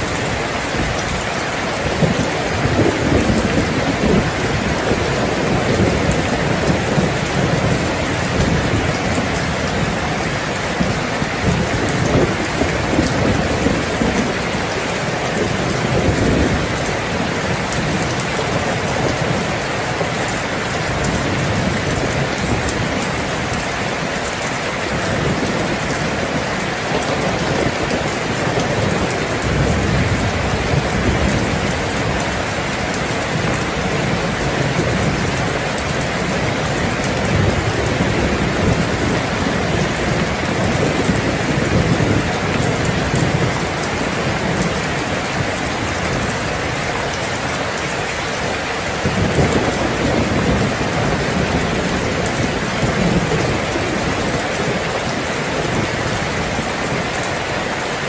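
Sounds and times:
low thunder rolls: 0.0 - 23.7, 24.9 - 47.6, 48.9 - 57.0
heavy rain falling: 0.0 - 58.0.

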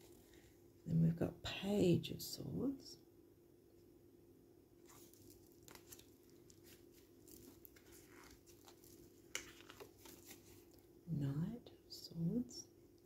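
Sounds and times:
faint steady hum: 0.0 - 13.0
cards rustling and ticking: 4.8 - 10.9.

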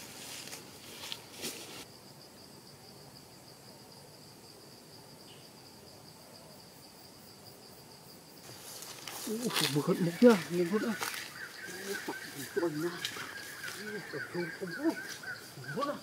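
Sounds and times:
faint outdoor hiss: 0.0 - 16.0
insect trilling: 5.0 - 16.0.

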